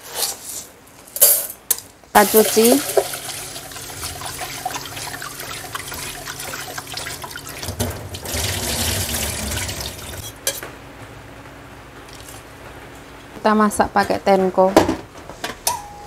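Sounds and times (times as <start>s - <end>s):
water running from a tap: 2.2s - 10.3s.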